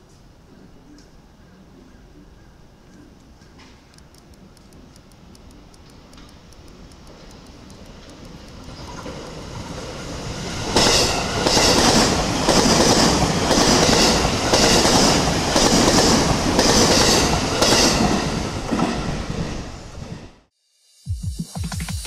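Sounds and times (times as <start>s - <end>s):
train wheels clattering: 7.0s - 19.1s.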